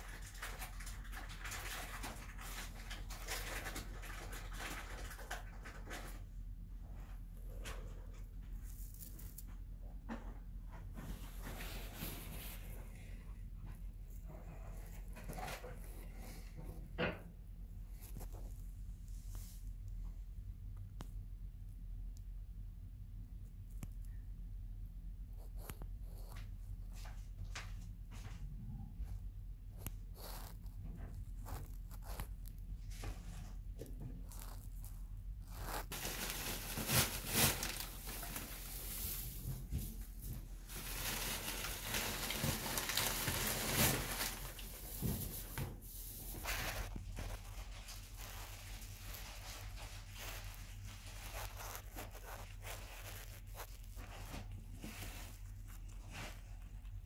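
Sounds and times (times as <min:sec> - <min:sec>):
dry hay rustling and crackling: 0:35.5 - 0:56.3.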